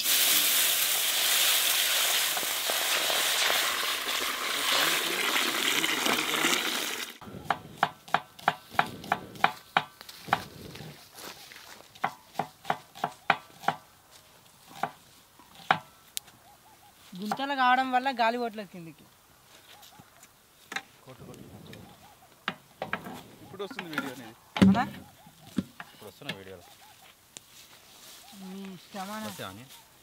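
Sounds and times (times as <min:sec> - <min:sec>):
water hissing on hot pan: 0:00.0 - 0:07.2
knife chopping on a board: 0:07.5 - 0:09.9, 0:12.0 - 0:13.8.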